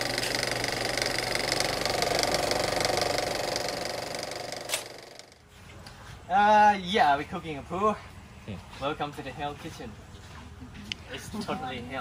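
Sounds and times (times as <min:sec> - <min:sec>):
rapidly pulsing buzz: 0:00.0 - 0:05.4.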